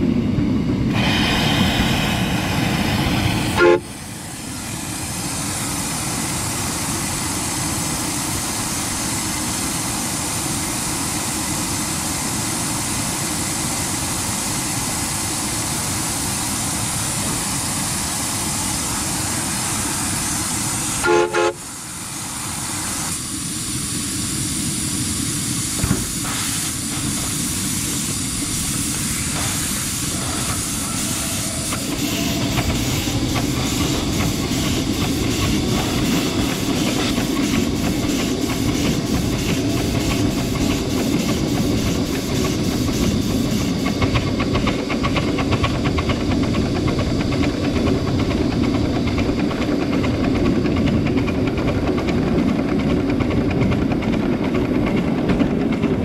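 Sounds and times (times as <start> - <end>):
steam locomotive hissing: 0.0 - 53.0
steam whistle toots: 3.5 - 3.9, 20.9 - 21.8, 30.1 - 33.2, 39.4 - 40.8.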